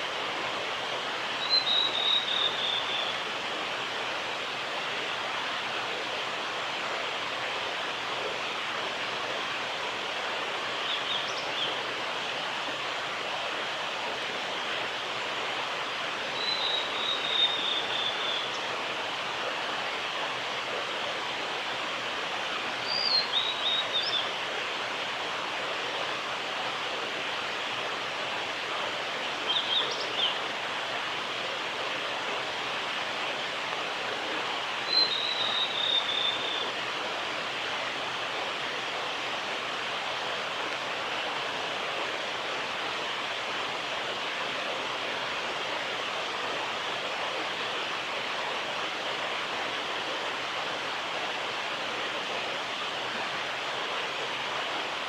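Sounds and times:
bird singing high phrases: 1.4 - 3.2, 16.4 - 18.6, 22.8 - 24.2, 34.9 - 36.6.

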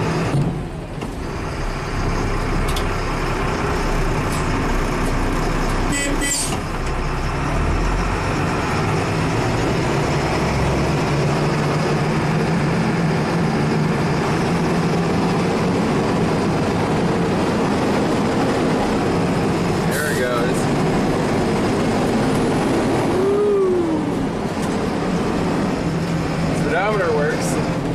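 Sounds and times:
cab rattle and road noise: 0.0 - 27.9
diesel truck engine droning: 0.0 - 27.9.

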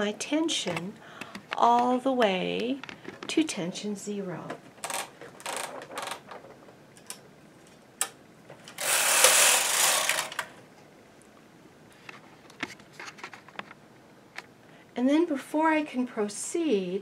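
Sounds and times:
knitting machine clicks: 8.8 - 10.5.

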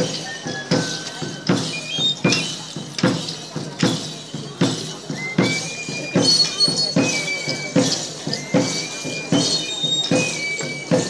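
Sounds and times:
high flute melody: 0.0 - 2.8, 5.1 - 11.0
drum struck steadily: 0.0 - 11.0.

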